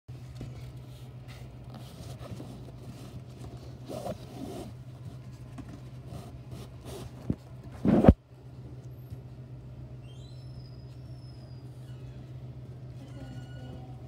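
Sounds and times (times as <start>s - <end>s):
steady low hum: 0.1s - 14.0s
rustling and scraping on fleece: 0.6s - 8.2s.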